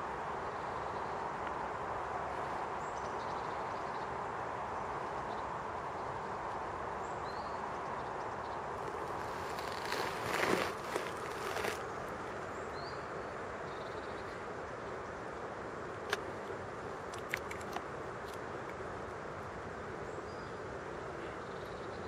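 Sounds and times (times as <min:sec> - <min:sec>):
outdoor background noise: 0:00.0 - 0:22.0
faint bird chirps: 0:20.0 - 0:22.0.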